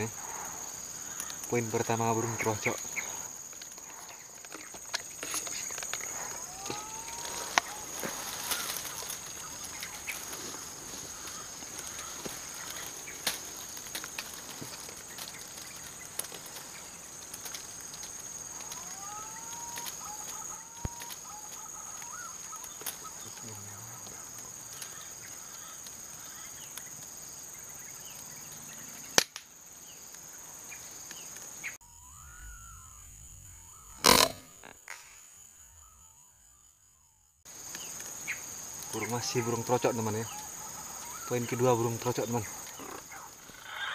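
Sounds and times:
short bird calls: 1.0 - 13.3, 31.6 - 37.1, 37.7 - 43.9
sharp click: 34.0 - 35.2.

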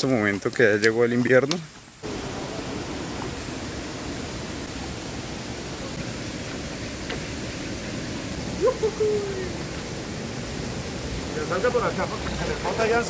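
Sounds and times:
flowing river water: 2.0 - 13.0.

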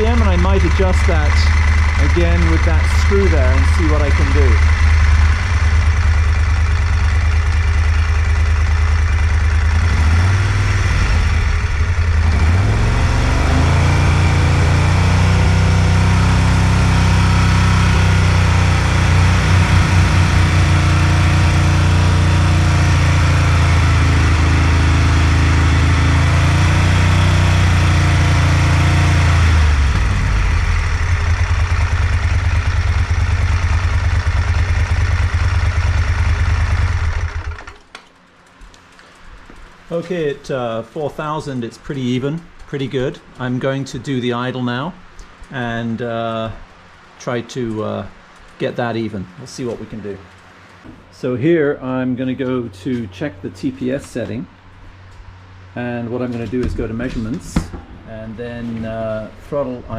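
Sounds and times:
motorcycle engine idling and revving: 0.0 - 40.6.

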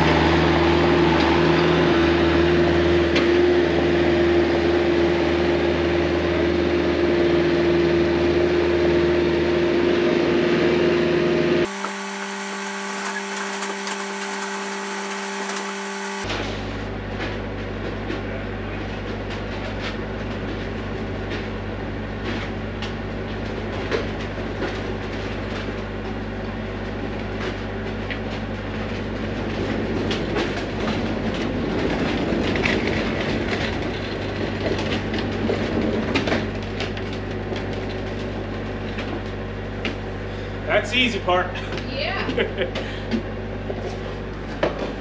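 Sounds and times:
low mechanical hum: 0.0 - 45.0
rattling and clattering: 27.4 - 39.2.

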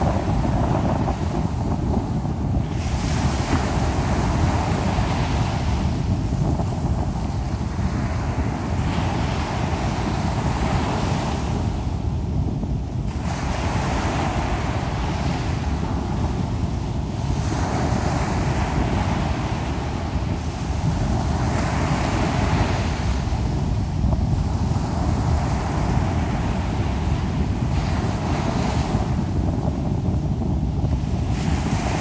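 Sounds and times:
waves washing up a sandy beach: 0.0 - 32.0
wind buffeting microphone: 0.0 - 32.0.

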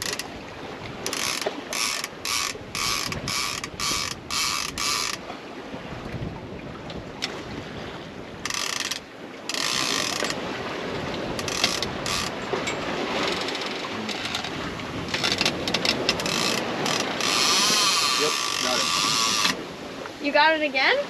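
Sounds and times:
fishing reel ratchet clicking: 0.0 - 0.3, 1.1 - 5.2, 8.5 - 10.4, 11.4 - 12.3, 15.2 - 19.6
wind and water rushing: 0.0 - 21.0.

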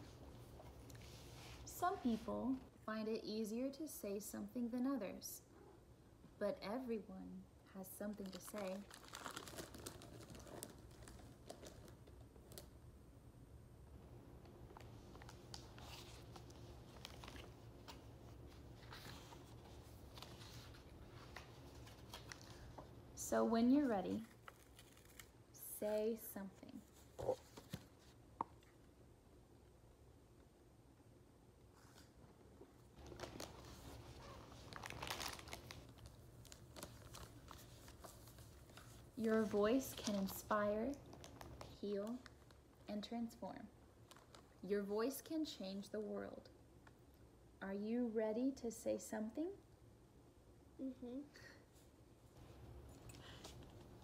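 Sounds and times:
foil chip bag crinkling: 8.0 - 12.8, 24.2 - 25.4, 33.0 - 39.1, 39.8 - 42.7, 44.0 - 44.6.

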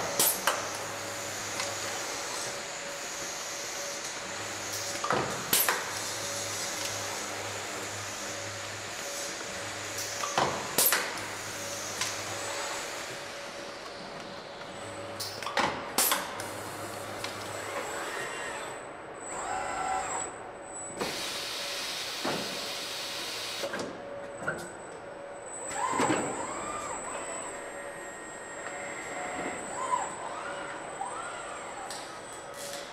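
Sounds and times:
robot arm motor whines: 17.4 - 20.3, 25.6 - 32.8.

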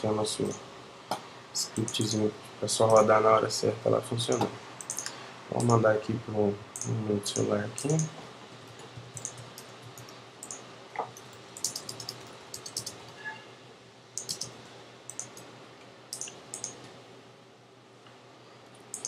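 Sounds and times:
faint steady hum: 0.0 - 19.0
typing on computer keyboard: 4.3 - 5.8, 6.8 - 13.1, 14.2 - 15.4, 16.1 - 16.8.

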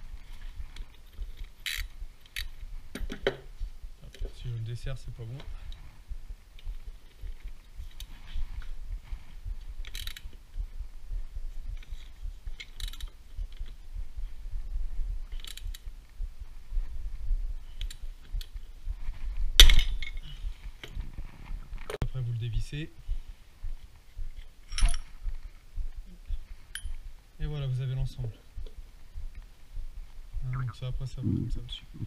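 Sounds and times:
wrench clicking and clanking: 1.4 - 2.5, 9.8 - 10.3, 12.6 - 13.1, 15.3 - 15.8, 24.7 - 25.1.

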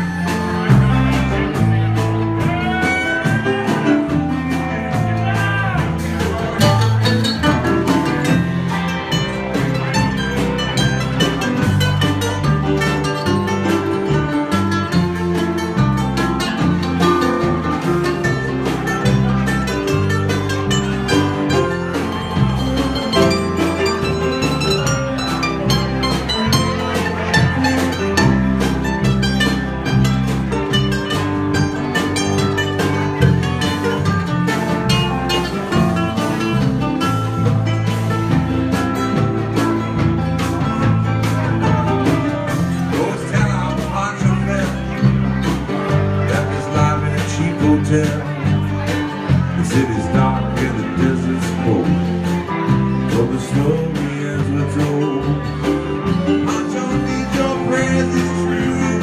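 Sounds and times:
bass line: 0.0 - 59.0
lead guitar quick runs: 0.0 - 59.0.

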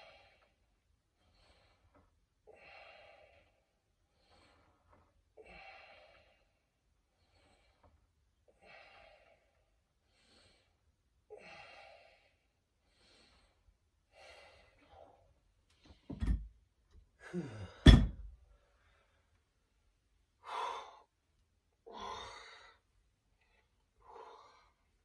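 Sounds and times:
heavy rhythmic breathing: 21.8 - 25.0.

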